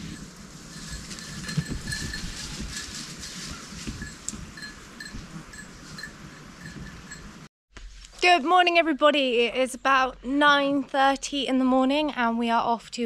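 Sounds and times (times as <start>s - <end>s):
small bells tinkling: 0.0s - 3.0s, 3.9s - 7.4s
wind buffeting microphone: 0.0s - 7.5s.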